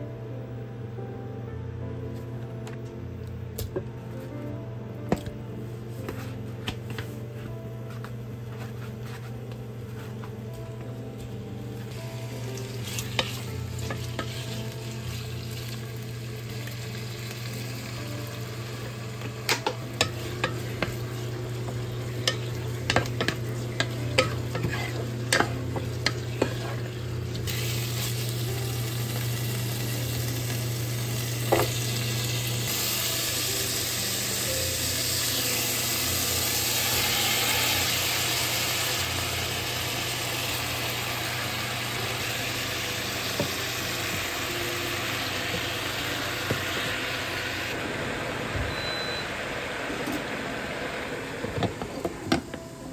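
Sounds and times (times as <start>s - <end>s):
wooden spatula scraping a pot: 8.5s - 9.3s, 21.8s - 27.0s
chicken sizzling in a pot: 11.2s - 52.9s.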